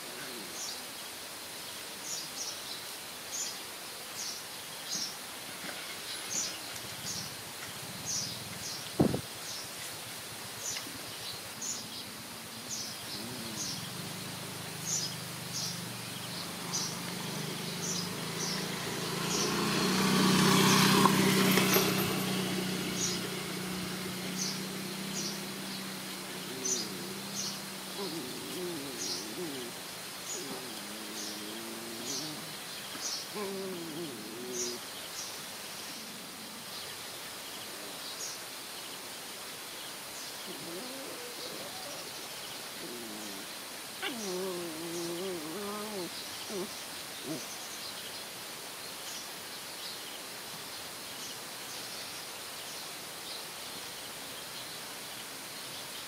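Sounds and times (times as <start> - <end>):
passing motor vehicle: 4.9 - 38.6, 40.4 - 47.6
small bird chirping: 10.6 - 19.8, 21.3 - 36.1, 40.2 - 48.1
puppies whining and yelping: 27.9 - 29.8, 44.0 - 46.7.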